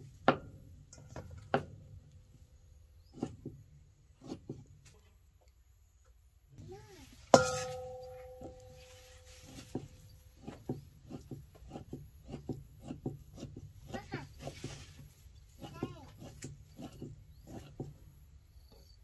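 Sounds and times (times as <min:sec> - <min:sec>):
loud metallic clang: 0:07.4 - 0:08.9.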